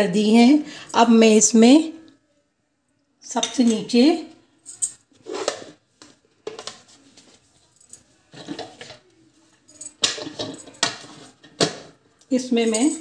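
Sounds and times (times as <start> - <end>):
plates knocking and scraping: 5.2 - 7.0, 8.3 - 9.0, 10.0 - 12.0.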